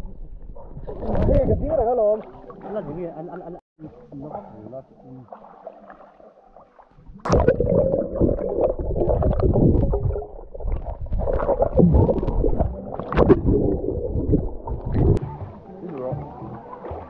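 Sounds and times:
underwater rumbling and gurgling: 0.0s - 2.6s, 6.6s - 15.4s
water splashing: 0.5s - 3.6s, 5.0s - 17.0s.

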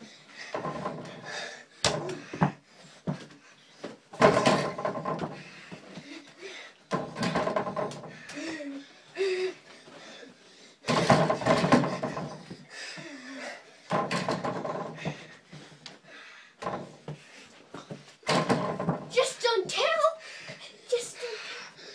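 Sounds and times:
basketball banging on backboard and door: 0.5s - 3.3s, 4.1s - 5.8s, 6.9s - 8.2s, 10.9s - 12.6s, 13.9s - 15.3s, 16.6s - 19.2s.

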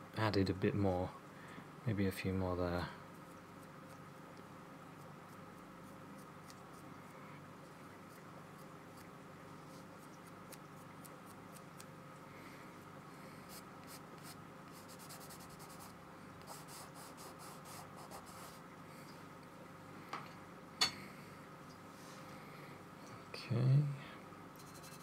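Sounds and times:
low steady hum: 0.0s - 25.0s
paintbrush scratchy ticks on paper: 13.5s - 18.6s, 24.6s - 25.0s.

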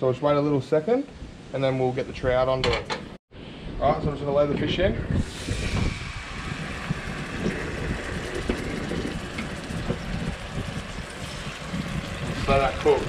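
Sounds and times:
fish sizzling in a frying pan: 5.4s - 13.0s.

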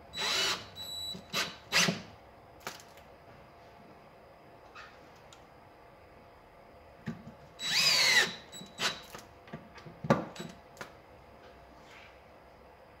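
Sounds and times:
drill motor running: 0.1s - 2.0s, 7.6s - 9.0s.

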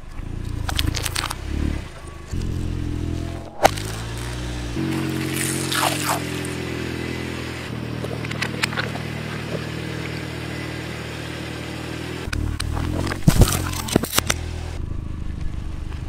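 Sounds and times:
crinkling and crackling: 0.0s - 2.6s, 12.3s - 14.4s
car engine running: 0.0s - 16.0s.

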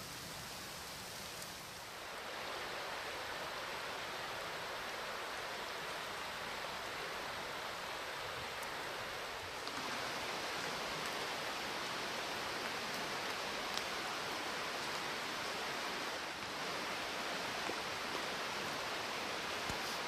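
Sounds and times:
creek rushing: 0.0s - 20.0s
faint click: 19.6s - 20.0s.

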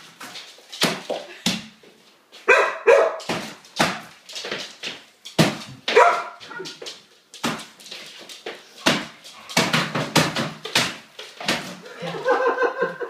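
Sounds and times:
dog barking: 2.5s - 3.3s, 5.9s - 6.8s.

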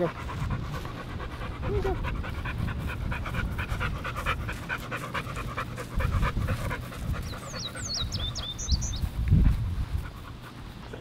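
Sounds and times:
dog panting: 0.0s - 11.0s.

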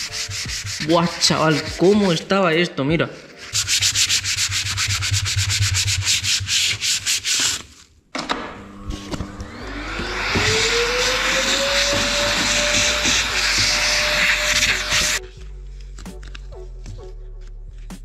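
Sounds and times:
rag scrubbing rhythmically: 0.0s - 2.4s, 3.2s - 7.7s, 9.8s - 15.2s
electric motor whining: 8.6s - 15.2s.

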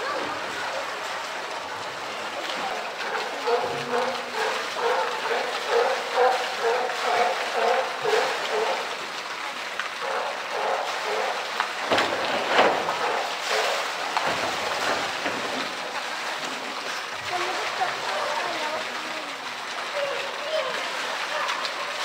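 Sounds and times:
people talking: 0.0s - 9.6s, 17.2s - 22.0s
rushing water from inlet: 0.0s - 22.0s
water sloshing and splashing: 0.0s - 22.0s.

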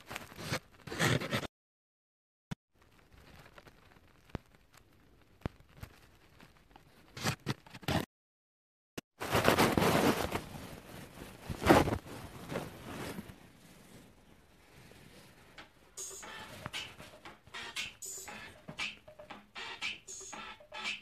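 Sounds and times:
fabric rustling against microphone: 9.2s - 17.2s.

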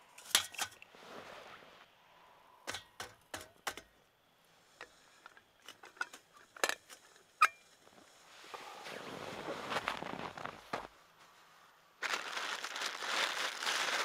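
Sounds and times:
camp gear clicking and knocking: 2.6s - 3.9s.

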